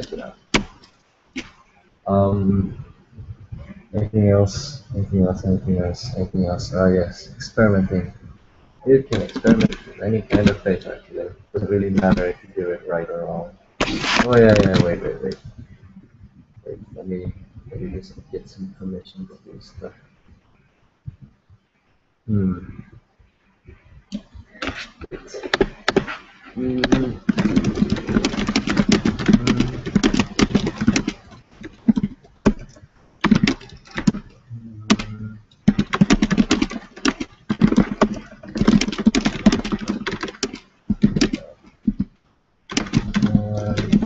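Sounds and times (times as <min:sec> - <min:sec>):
computer keyboard typing: 0:09.1 - 0:11.0, 0:11.8 - 0:12.4, 0:13.8 - 0:15.4, 0:24.2 - 0:42.1, 0:42.7 - 0:44.0.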